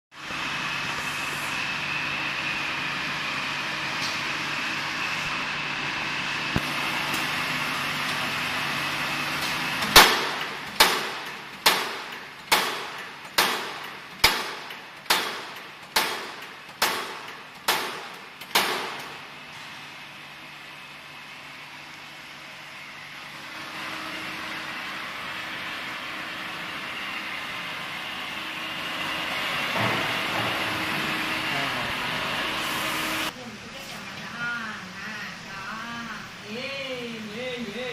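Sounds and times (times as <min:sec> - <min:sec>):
hydraulic power unit hum and whine: 0:00.1 - 0:37.9
metallic punch bangs: 0:09.9 - 0:19.1.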